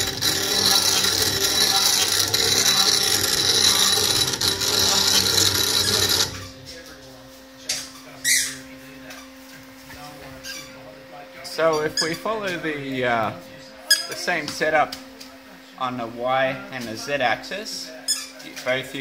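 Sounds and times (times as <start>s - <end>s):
milling machine running: 0.0s - 6.8s.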